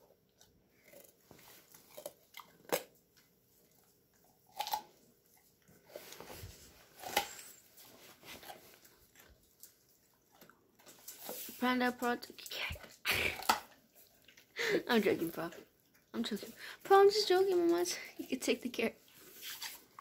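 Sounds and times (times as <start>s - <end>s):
dog chewing carrot: 0.0s - 11.6s, 12.3s - 14.5s.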